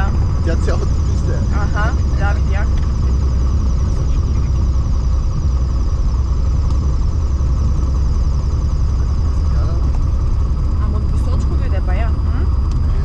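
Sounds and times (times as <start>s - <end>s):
aircraft engine drone: 0.0s - 13.0s
high whine: 0.0s - 13.0s.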